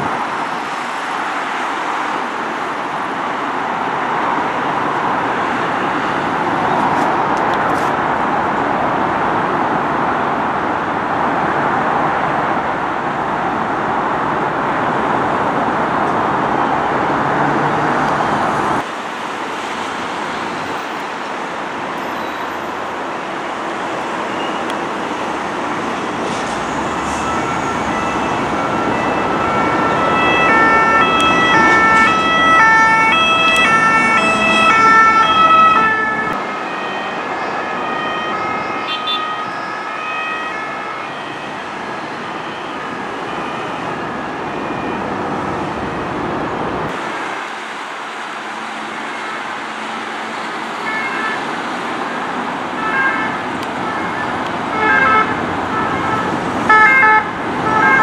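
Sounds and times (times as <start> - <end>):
highway traffic noise: 0.0 - 58.0
two-tone ambulance siren: 19.8 - 47.2, 48.4 - 58.0.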